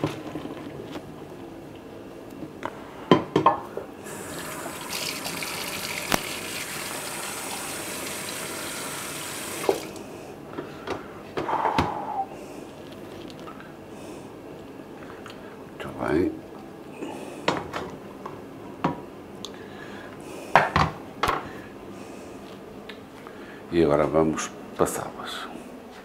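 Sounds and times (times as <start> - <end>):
water rushing into a sink: 4.1 - 10.0.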